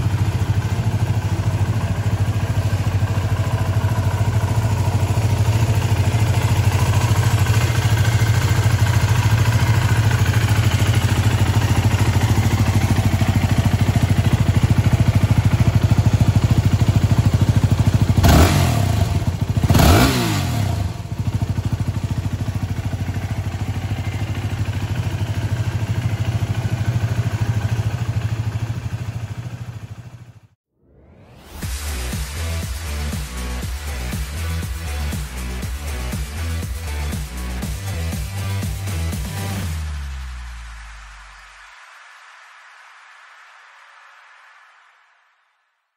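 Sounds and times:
motorcycle engine idling: 0:00.0 - 0:30.6.

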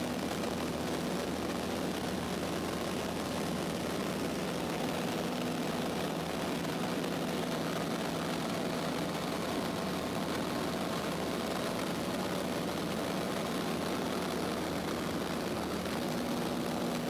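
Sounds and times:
airplane engine drone from cabin: 0:00.0 - 0:17.0.

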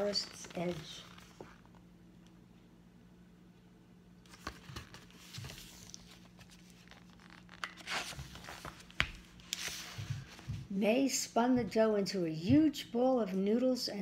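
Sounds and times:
paper and book covers rustling: 0:00.0 - 0:01.8, 0:04.2 - 0:10.8
faint steady hum: 0:00.0 - 0:14.0.

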